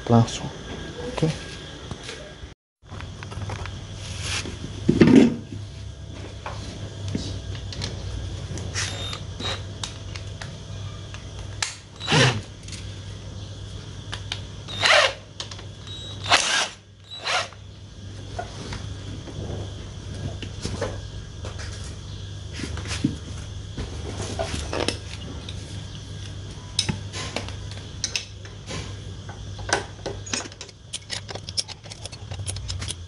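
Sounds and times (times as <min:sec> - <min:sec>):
cordless screwdriver whirring: 0:14.7 - 0:15.2, 0:15.9 - 0:17.6.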